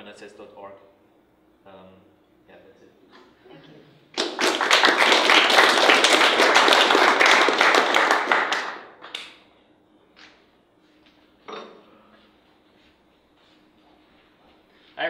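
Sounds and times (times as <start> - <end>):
audience applauding: 4.1 - 9.4.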